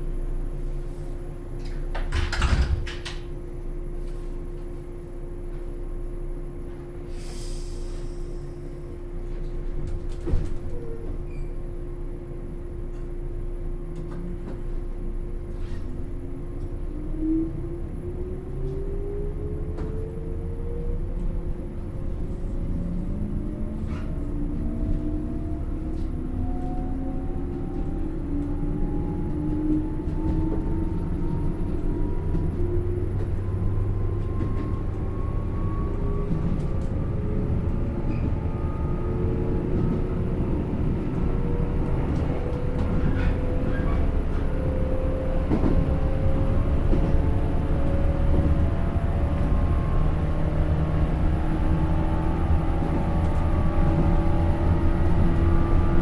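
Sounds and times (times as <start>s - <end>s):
electric train rumble: 0.0s - 56.0s.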